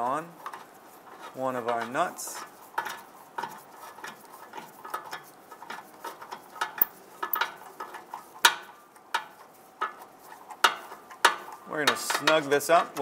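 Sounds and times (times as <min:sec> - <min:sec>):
metal clinks: 0:06.8 - 0:07.4
ratchet clicking: 0:06.8 - 0:07.4.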